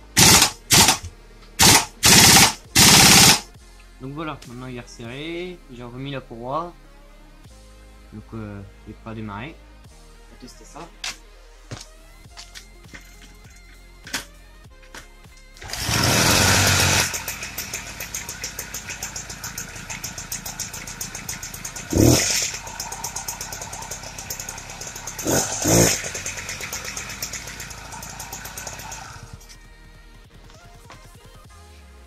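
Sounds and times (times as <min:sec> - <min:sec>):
moped engine starting and running: 0:00.1 - 0:03.4, 0:15.6 - 0:29.6.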